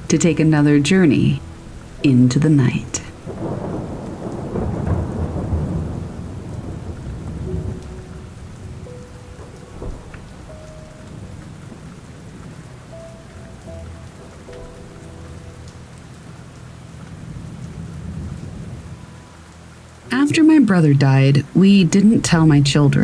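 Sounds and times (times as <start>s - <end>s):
steady rainfall: 0.0s - 23.0s
thunder rumbling: 0.0s - 23.0s.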